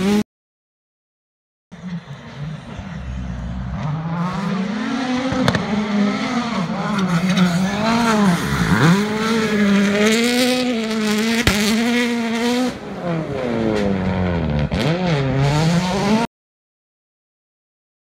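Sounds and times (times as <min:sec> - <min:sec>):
rally car engines at full throttle: 0:00.0 - 0:00.2, 0:01.7 - 0:16.3
sharp crack: 0:11.4 - 0:12.1.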